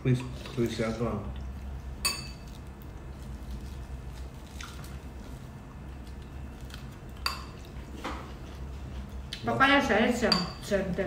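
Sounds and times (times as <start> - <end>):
people chewing food: 0.0 - 9.6
metal spoon clinking ceramic bowl: 2.0 - 2.4, 10.3 - 10.6.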